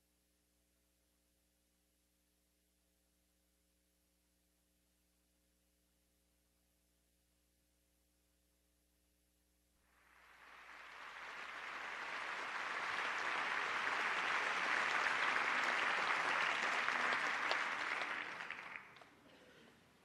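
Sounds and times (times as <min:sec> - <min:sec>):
audience applauding: 0:09.9 - 0:19.2.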